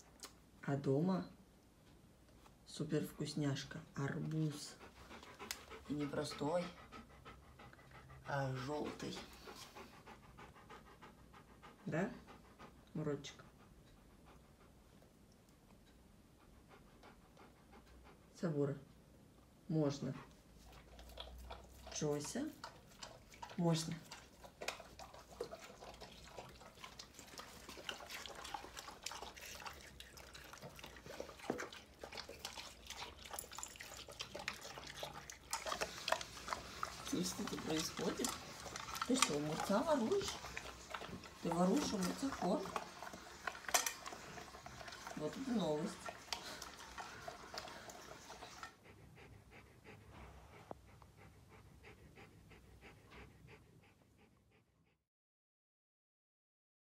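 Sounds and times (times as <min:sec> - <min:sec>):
dogs chewing and slurping: 0:04.0 - 0:12.7, 0:20.0 - 0:53.9.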